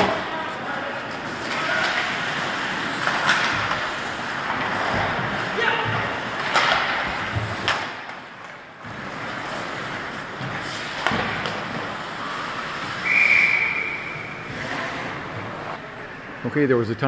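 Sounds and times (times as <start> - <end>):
hockey sticks knocking puck: 1.0 - 15.5
referee's whistle: 13.0 - 14.4.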